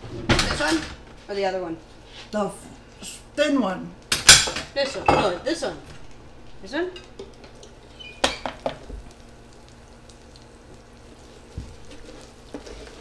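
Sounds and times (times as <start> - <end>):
sandwich sizzling on grill plate: 7.2 - 13.0.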